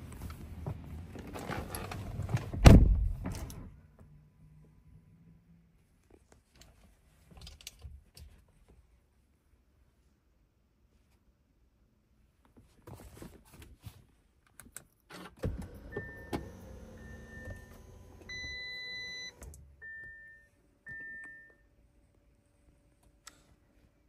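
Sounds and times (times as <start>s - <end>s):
thump: 2.6s - 3.3s.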